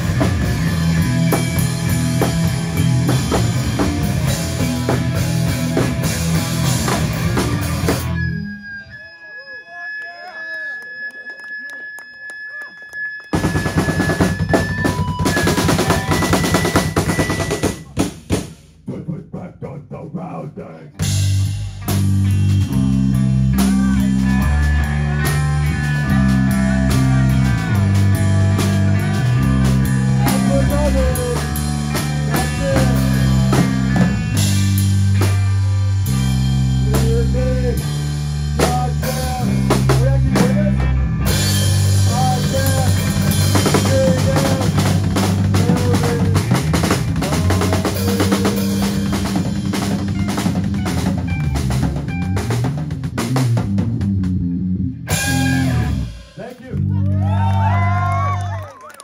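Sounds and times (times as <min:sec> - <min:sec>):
drum kit hitting hard: 0:00.0 - 0:08.2, 0:13.5 - 0:18.9, 0:38.6 - 0:54.4, 0:55.1 - 0:56.4
live rock band playing: 0:00.0 - 0:08.9, 0:13.2 - 0:18.6, 0:21.0 - 0:58.4
bass notes: 0:00.0 - 0:09.0, 0:13.3 - 0:58.5.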